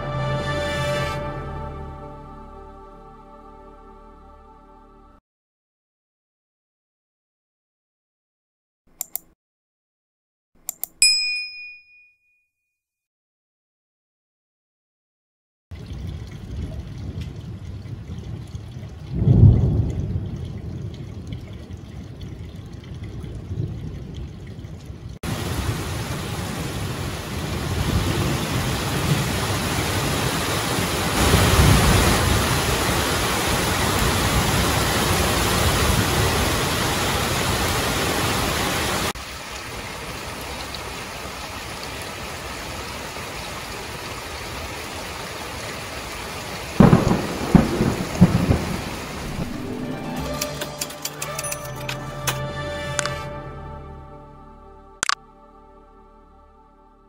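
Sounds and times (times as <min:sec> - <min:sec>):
thunder rumbling: 0:15.8 - 0:39.1, 0:46.8 - 0:50.0
heavy rain hissing: 0:25.2 - 0:50.4.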